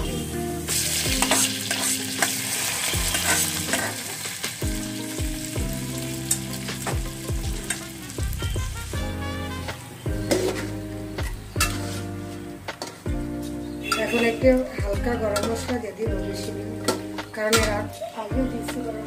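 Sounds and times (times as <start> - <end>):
hot oil sizzling: 0.0 - 15.8
spatula scraping a pot: 11.6 - 12.2.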